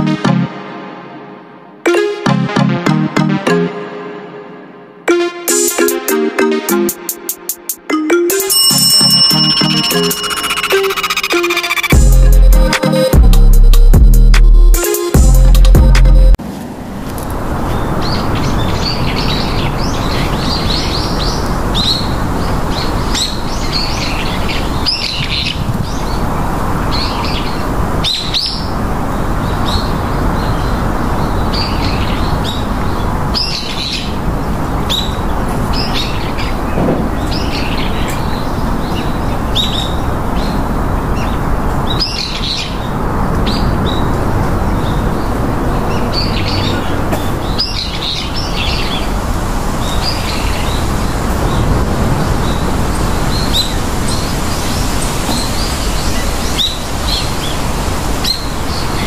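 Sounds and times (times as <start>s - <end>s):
loud steady rushing noise: 16.3s - 59.0s
small birds chirping: 17.6s - 59.0s.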